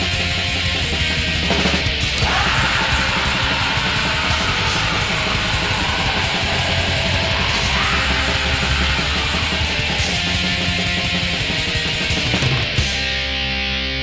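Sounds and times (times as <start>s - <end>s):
metal band playing: 0.0s - 13.6s.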